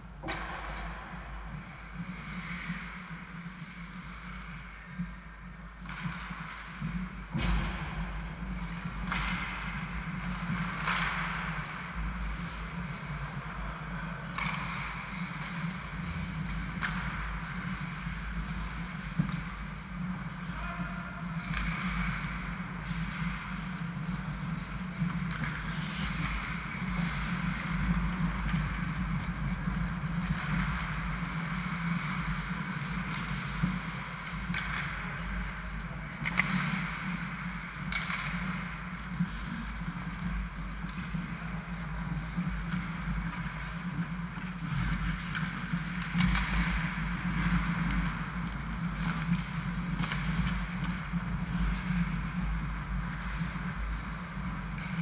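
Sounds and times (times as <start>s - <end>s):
low mechanical hum: 0.0s - 55.0s
skate blades scraping ice: 0.8s - 20.6s, 21.2s - 55.0s.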